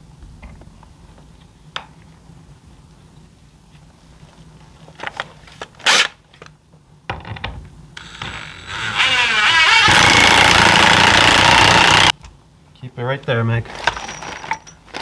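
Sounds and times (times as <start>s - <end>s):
impact driver motor whirring: 8.0s - 12.1s.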